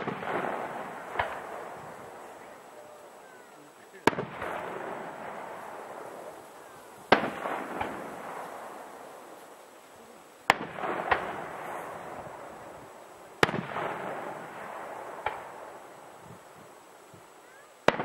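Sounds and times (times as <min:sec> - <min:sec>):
rolling echo: 0:00.0 - 0:09.5, 0:10.5 - 0:16.7
firework shells bursting: 0:00.0 - 0:18.0
small firework pop: 0:07.1 - 0:08.1, 0:15.2 - 0:15.5.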